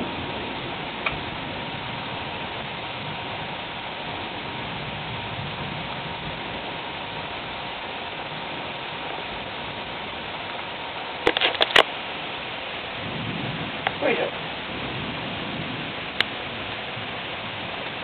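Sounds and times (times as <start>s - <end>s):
steady rain falling: 0.0s - 18.0s
sharp cracks: 11.2s - 12.0s.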